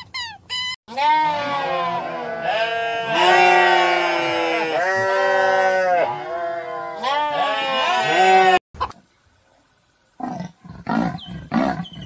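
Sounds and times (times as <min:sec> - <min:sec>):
herd of goats bleating: 0:00.9 - 0:08.6.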